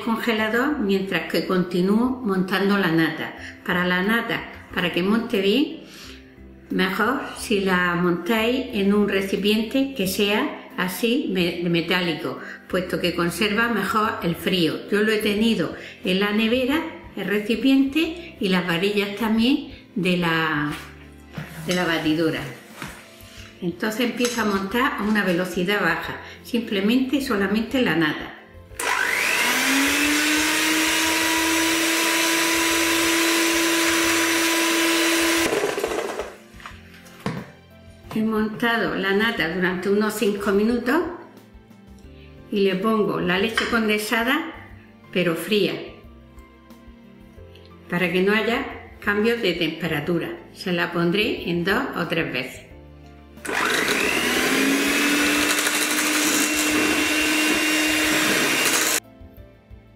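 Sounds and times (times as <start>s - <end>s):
electric hand mixer running: 28.8s - 36.4s, 53.4s - 59.0s.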